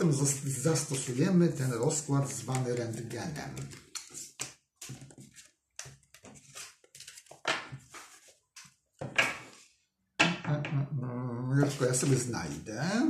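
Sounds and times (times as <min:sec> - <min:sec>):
cards rustling and tapping: 0:00.8 - 0:09.6, 0:11.6 - 0:12.6.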